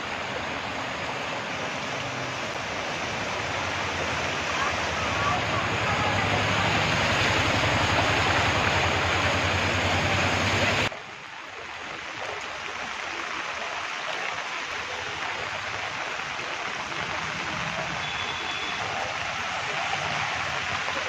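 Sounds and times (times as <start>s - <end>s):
heavy rain pouring: 0.0s - 21.0s
water rushing: 0.0s - 21.0s.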